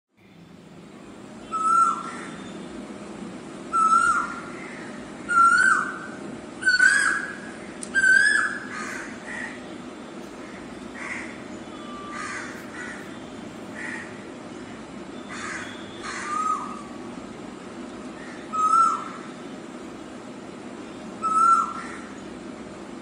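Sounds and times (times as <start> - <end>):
bird calling: 1.4 - 2.8, 3.7 - 17.1, 18.1 - 19.8, 20.8 - 22.3.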